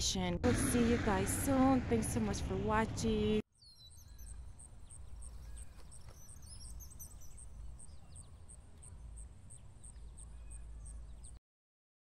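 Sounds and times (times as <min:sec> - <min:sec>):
steady low rumble: 0:00.0 - 0:03.4
thin high repeated note: 0:00.4 - 0:03.2
songbirds chirping: 0:03.6 - 0:11.4.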